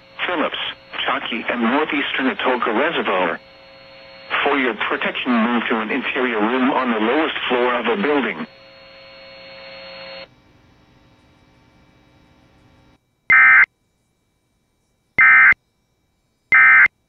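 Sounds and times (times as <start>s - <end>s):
faint steady hum: 0.0s - 17.0s
digital data tone bursts: 13.3s - 13.7s, 15.2s - 15.6s, 16.5s - 16.9s.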